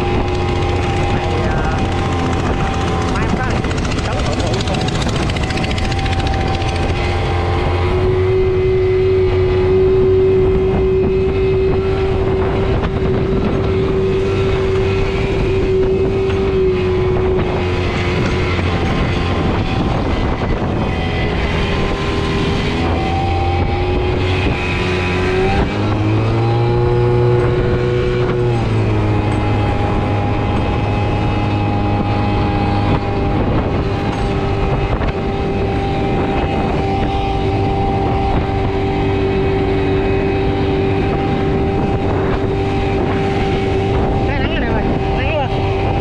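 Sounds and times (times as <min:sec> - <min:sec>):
motorbike engine revving: 0:00.0 - 0:46.0.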